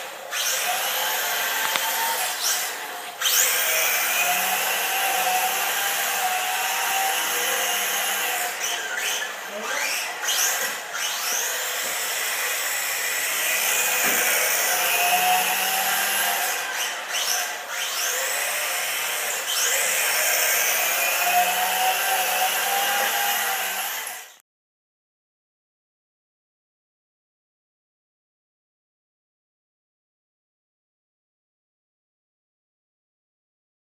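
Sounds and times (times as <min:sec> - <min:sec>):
toy car motor whining: 0:00.0 - 0:24.4.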